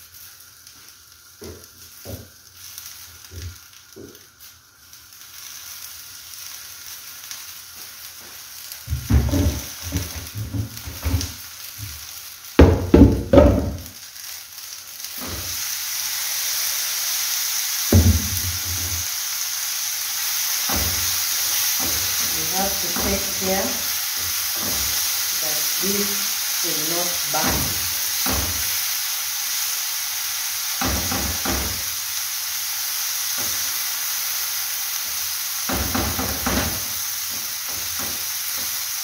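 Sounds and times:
stew sizzling in a pan: 0.0s - 39.0s
knocks and thumps: 8.9s - 12.0s, 12.6s - 13.9s, 17.9s - 19.0s, 35.7s - 38.2s.

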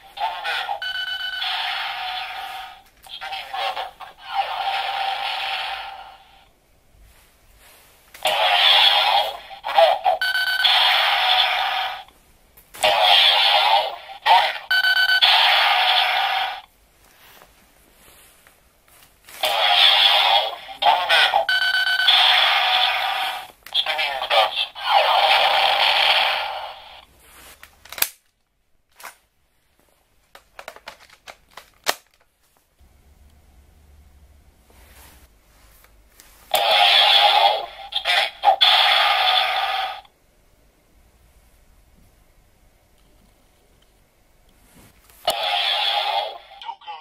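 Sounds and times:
electronic toy sound effects: 0.2s - 6.3s, 8.2s - 12.1s, 12.8s - 16.7s, 19.4s - 27.0s, 36.6s - 40.1s, 45.3s - 47.0s
short beeping tone: 14.7s - 15.2s
plastic toys clicking: 30.4s - 32.2s.

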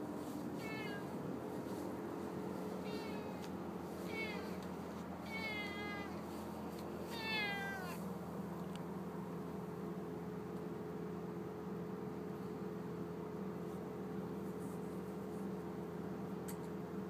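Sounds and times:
steady low hum: 0.0s - 17.0s
cat meowing: 0.6s - 1.2s, 2.8s - 4.6s, 5.2s - 6.3s, 7.0s - 8.0s.

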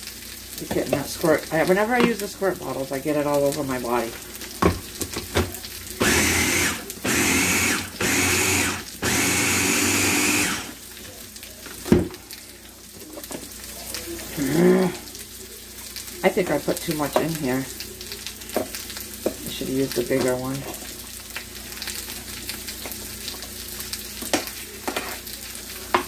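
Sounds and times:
food chopper motor whirring: 6.0s - 10.8s.

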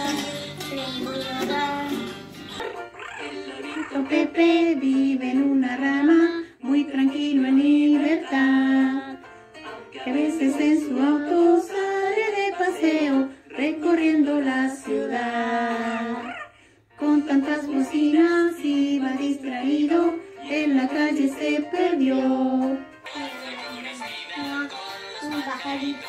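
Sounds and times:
woman singing: 0.0s - 2.2s, 3.4s - 16.3s, 17.0s - 26.0s
plucked guitar: 0.0s - 5.8s.

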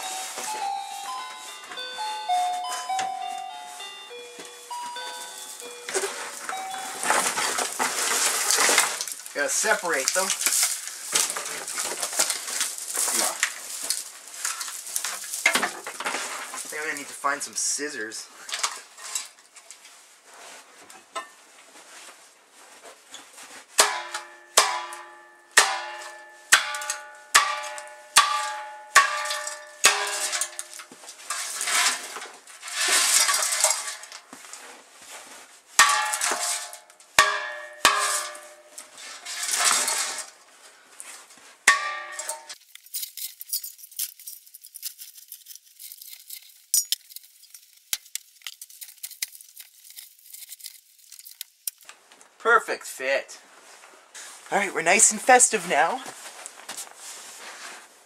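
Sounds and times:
faint crackle and hiss: 3.4s - 23.7s, 42.5s - 52.5s
metal can ringing: 23.8s - 30.8s, 35.8s - 38.8s, 41.7s - 42.6s.

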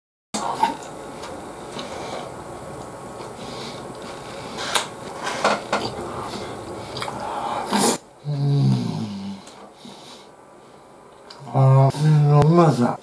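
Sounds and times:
chopsticks clicking and scraping: 2.8s - 6.0s
chewing: 3.2s - 7.2s.

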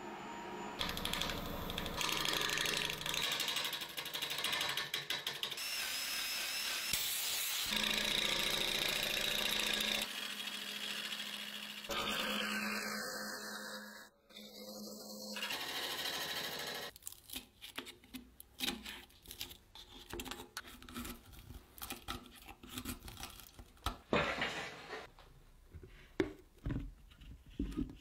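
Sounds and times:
wood lathe hum: 0.8s - 4.0s, 7.7s - 16.9s.

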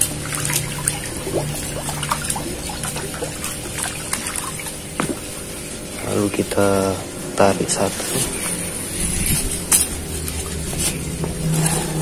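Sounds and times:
water splashing and dripping: 0.0s - 6.6s.

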